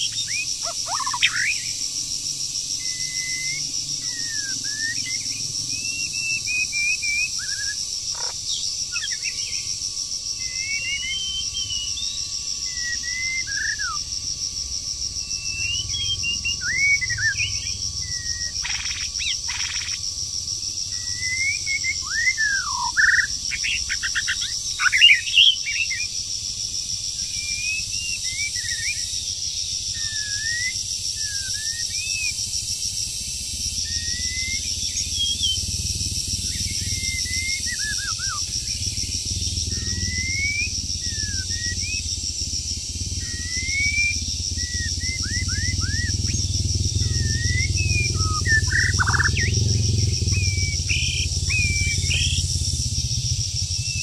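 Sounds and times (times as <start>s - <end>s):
insects trilling: 0.0s - 54.0s
songbird singing: 0.0s - 54.0s.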